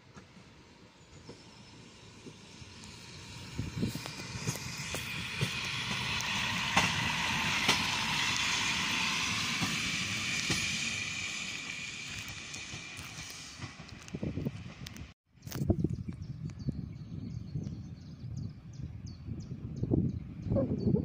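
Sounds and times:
diesel railbus engine rumble: 0.0 - 15.2
train wheel hiss: 0.1 - 14.8
wheels clicking over rail joints: 2.2 - 15.1.

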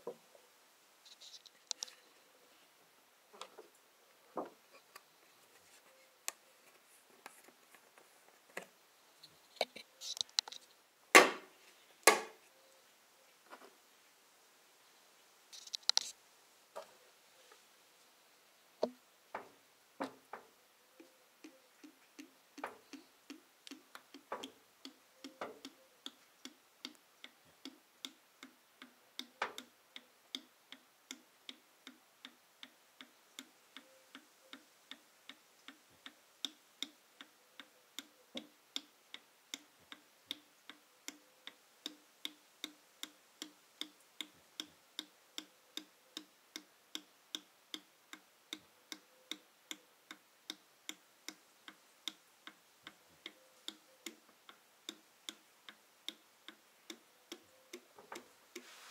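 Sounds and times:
clicks: 1.1 - 2.0.

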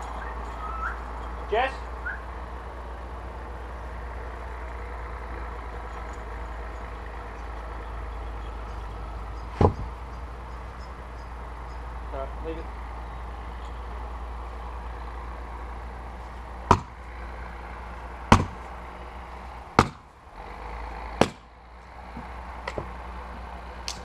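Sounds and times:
axe striking firewood: 9.5 - 10.0, 16.6 - 17.1, 18.3 - 18.8, 19.7 - 20.1, 21.2 - 21.5, 22.2 - 23.0.

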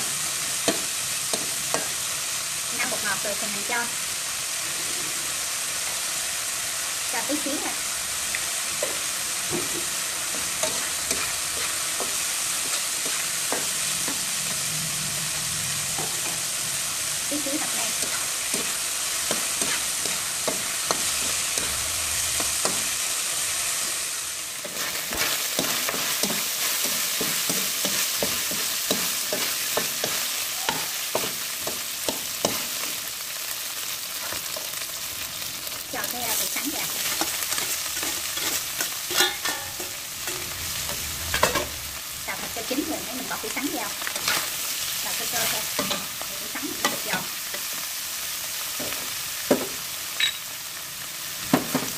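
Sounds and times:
vegetables sizzling in oil: 0.0 - 51.9
spatula scraping and knocking pan: 18.0 - 21.8, 24.7 - 32.9, 36.4 - 41.8.

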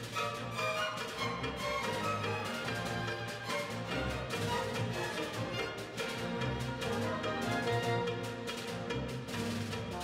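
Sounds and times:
strings bowing: 0.0 - 10.0
symphony orchestra playing: 0.0 - 10.0.

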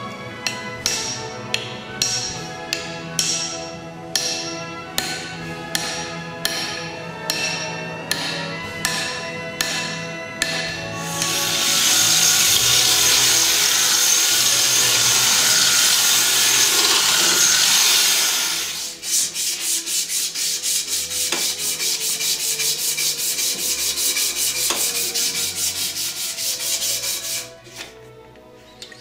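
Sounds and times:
angle grinder sanding wood: 11.0 - 27.6
abrasive cloth rubbing wood: 15.3 - 28.0.

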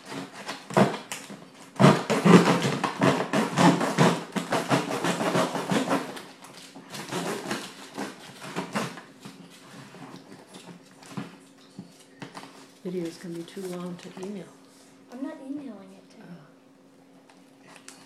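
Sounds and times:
knife sawing through cardboard: 1.6 - 6.3, 6.9 - 9.0.

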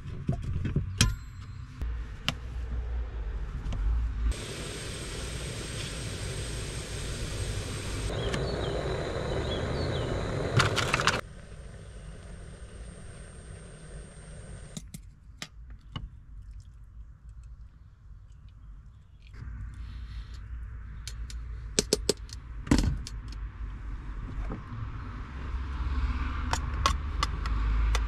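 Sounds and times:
gas stove hissing: 4.3 - 14.8.

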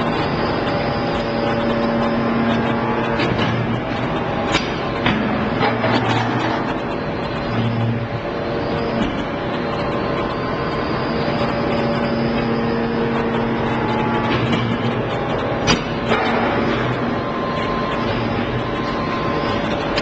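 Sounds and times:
hydraulic press machine hum: 0.0 - 20.0
faint high whine: 6.2 - 15.4.

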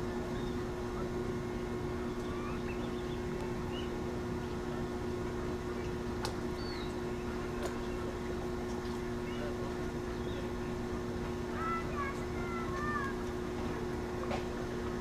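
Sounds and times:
low mechanical rumble with hum: 0.0 - 15.0
faint high bird chirps: 2.1 - 3.9.

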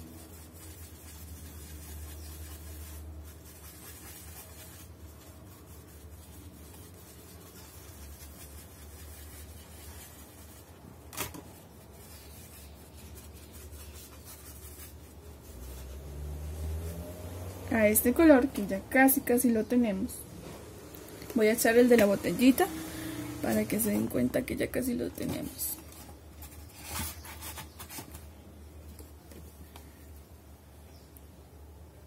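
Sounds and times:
paintbrush scratchy rubbing: 0.0 - 10.8, 11.6 - 18.8.

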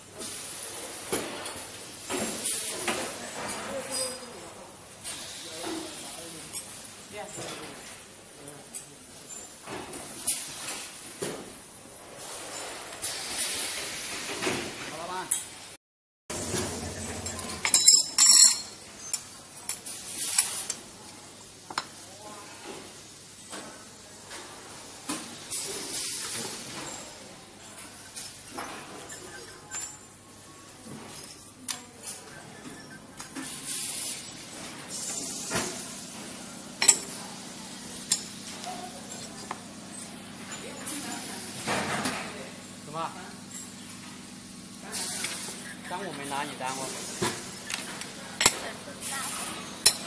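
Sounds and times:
machinery humming: 16.3 - 17.6
metal clinks and scrapes: 17.2 - 20.8, 30.9 - 32.3, 36.8 - 37.3.

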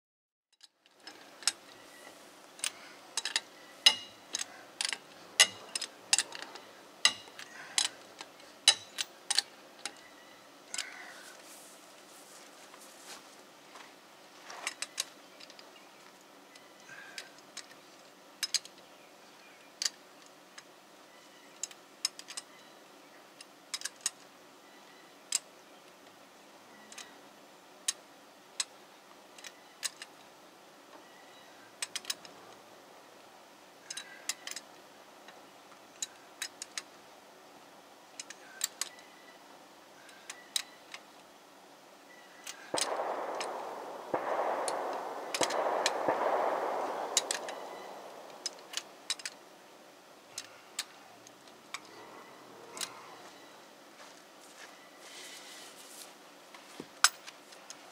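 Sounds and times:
rushing noise: 42.7 - 49.3.

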